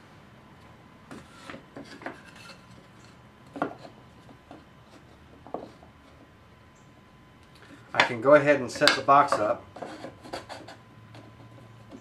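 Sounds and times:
light wooden knocks and scrapes: 0:01.1 - 0:02.9, 0:03.5 - 0:06.3.

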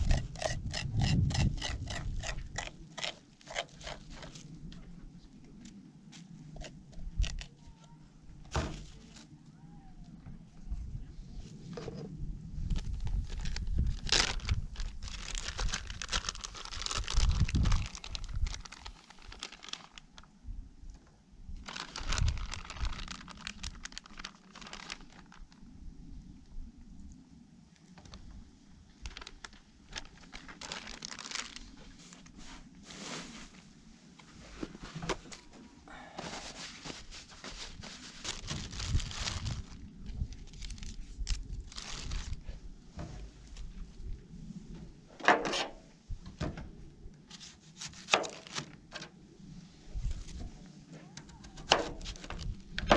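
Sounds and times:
plastic bag crinkling: 0:12.8 - 0:20.3, 0:21.6 - 0:25.6, 0:29.0 - 0:31.9, 0:37.6 - 0:42.4.

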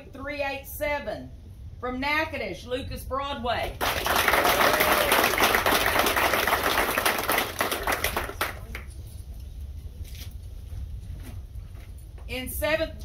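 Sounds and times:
crowd clapping: 0:03.8 - 0:09.0.

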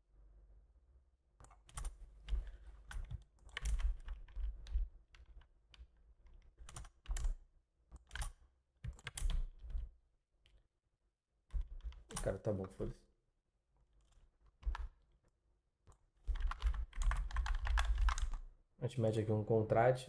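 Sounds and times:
keyboard keys tapping: 0:01.4 - 0:07.4, 0:16.3 - 0:18.4.

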